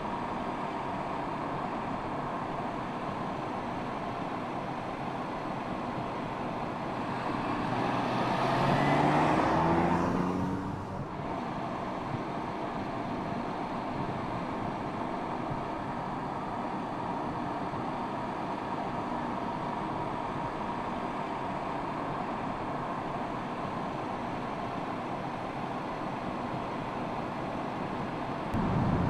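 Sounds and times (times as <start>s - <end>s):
road and tyre noise: 0.0s - 29.0s
car accelerating past: 7.0s - 11.1s.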